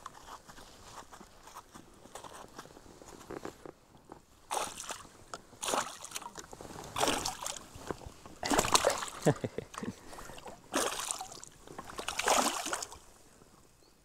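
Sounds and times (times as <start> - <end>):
water splashing against boat: 4.3 - 13.6.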